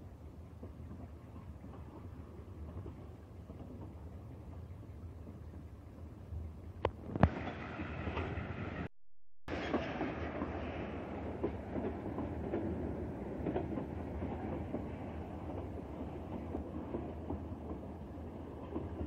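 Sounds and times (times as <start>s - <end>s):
train wheels rumbling on rails: 0.0s - 8.9s, 9.5s - 19.0s
clacks over rail joints: 0.5s - 5.6s, 11.2s - 19.0s.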